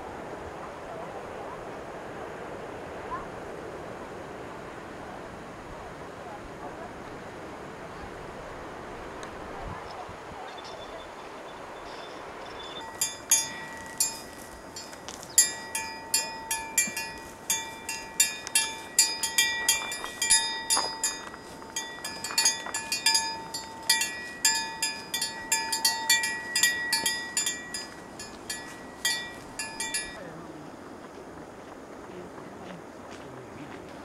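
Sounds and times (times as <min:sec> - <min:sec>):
faint steady hiss: 0:00.0 - 0:34.0
cow bell clanking: 0:12.6 - 0:30.3.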